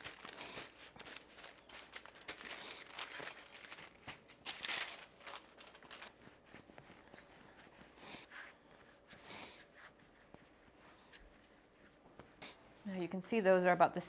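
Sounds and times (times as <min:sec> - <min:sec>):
hands rubbing dough: 0:00.0 - 0:04.3, 0:05.1 - 0:13.6
parchment paper crinkling: 0:00.0 - 0:09.0.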